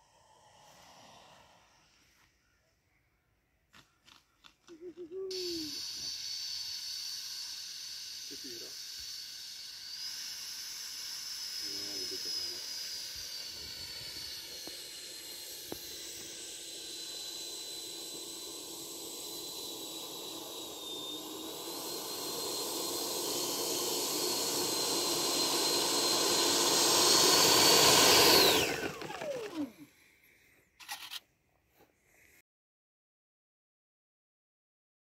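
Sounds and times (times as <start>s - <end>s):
electric ducted fan whining: 5.2s - 29.8s.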